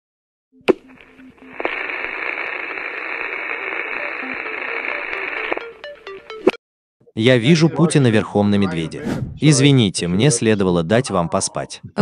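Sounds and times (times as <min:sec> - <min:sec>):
radio static hiss: 0:00.7 - 0:05.8.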